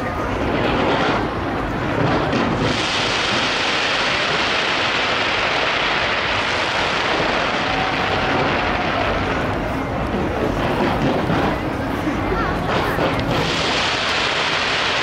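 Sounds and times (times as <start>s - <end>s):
fireworks crackling: 0.0s - 15.0s.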